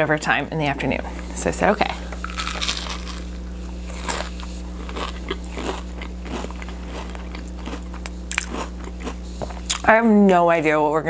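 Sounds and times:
crunchy chewing: 0:02.1 - 0:09.9.

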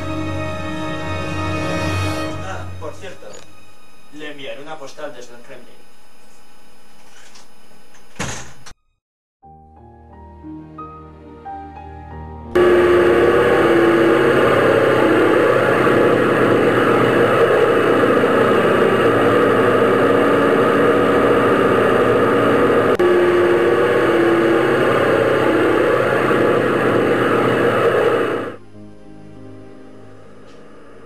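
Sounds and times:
propeller aircraft engine droning: 0:12.6 - 0:28.6.

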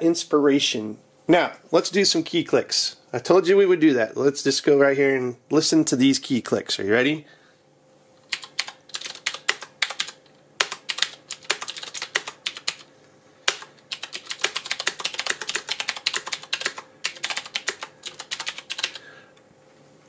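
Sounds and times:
mechanical keyboard clicks: 0:08.3 - 0:12.9, 0:13.5 - 0:19.0.

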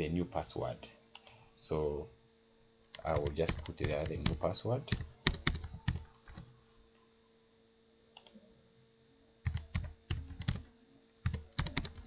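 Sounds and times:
faint steady hum: 0:00.0 - 0:12.0
computer keyboard typing: 0:02.8 - 0:06.5, 0:08.2 - 0:12.0.

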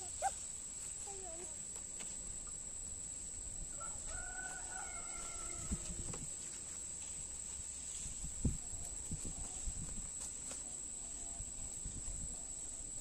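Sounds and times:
rooster crowing: 0:03.7 - 0:06.1.

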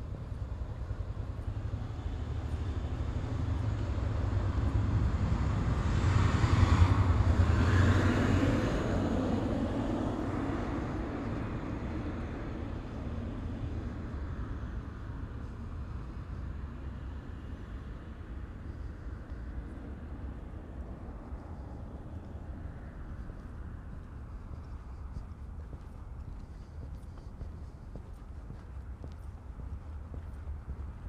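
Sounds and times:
steady low rumble: 0:00.0 - 0:31.0
vehicle passing by: 0:00.0 - 0:31.0.

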